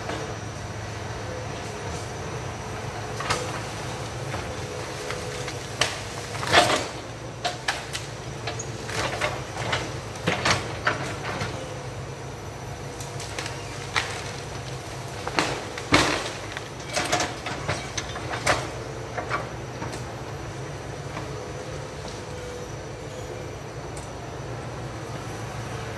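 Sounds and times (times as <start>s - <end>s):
excavator diesel engine running: 0.0s - 25.9s
timber and branches cracking: 4.9s - 8.2s, 12.9s - 18.8s.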